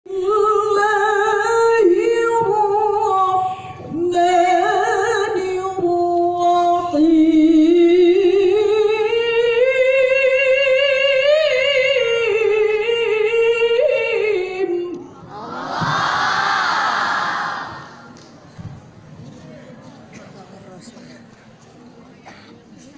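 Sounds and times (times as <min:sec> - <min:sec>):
woman reciting melodically over loudspeakers: 0:00.1 - 0:15.3.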